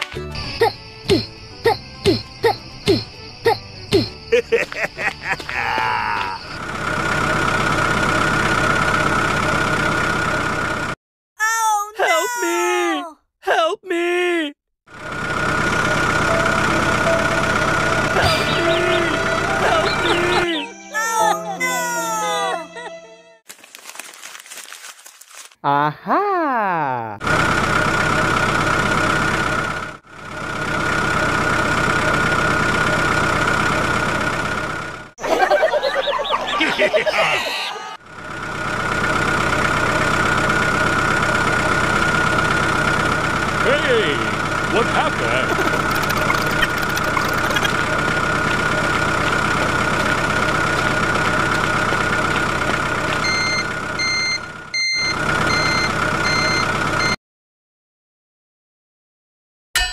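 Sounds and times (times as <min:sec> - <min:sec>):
tractor engine running: 0:06.4 - 0:11.0, 0:14.9 - 0:20.6, 0:27.2 - 0:37.0, 0:38.0 - 0:57.2
held whine: 0:15.0 - 0:20.7
reversing alarm beeping: 0:16.3 - 0:20.7, 0:53.2 - 0:57.2.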